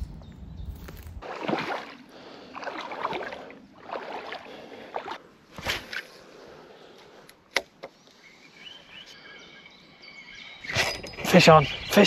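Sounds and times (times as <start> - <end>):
footsteps squelching on wet ground: 0.7 - 5.2.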